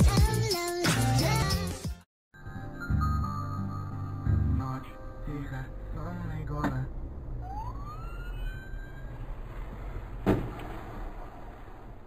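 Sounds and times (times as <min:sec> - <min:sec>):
low road rumble: 0:04.0 - 0:12.0
car crash: 0:06.6 - 0:12.0
ambulance siren wail: 0:07.2 - 0:09.8.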